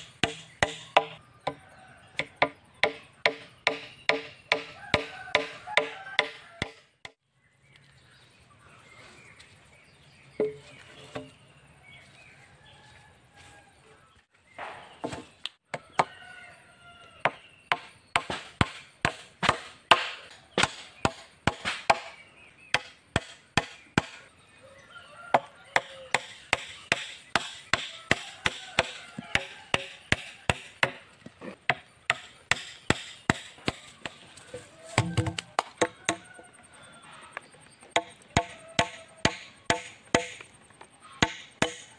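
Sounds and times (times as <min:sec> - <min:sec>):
hammer nailing wood: 0:00.0 - 0:01.2, 0:02.2 - 0:06.8, 0:31.7 - 0:33.6, 0:38.0 - 0:40.4, 0:41.2 - 0:41.9.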